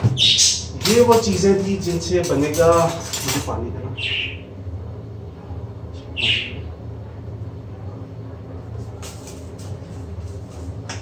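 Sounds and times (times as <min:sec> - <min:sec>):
steady low hum: 0:00.0 - 0:11.0
bird chirp: 0:00.2 - 0:00.7, 0:04.0 - 0:04.5, 0:06.0 - 0:06.7.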